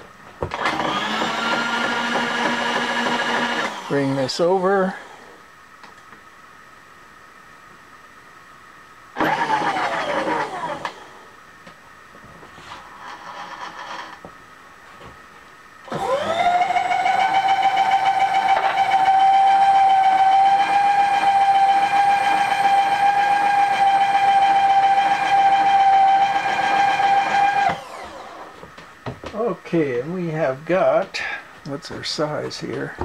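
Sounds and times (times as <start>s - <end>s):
machine power feed whining: 0.5s - 5.2s, 9.2s - 11.2s, 15.9s - 28.6s.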